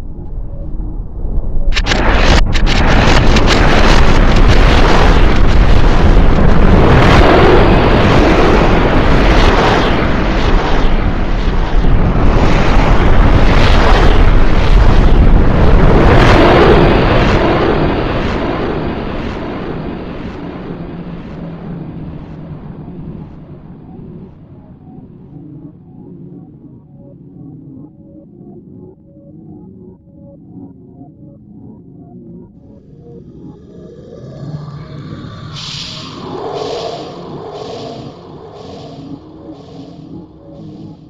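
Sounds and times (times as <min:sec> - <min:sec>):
loud dense rumbling: 0:01.8 - 0:25.8, 0:32.6 - 0:41.0.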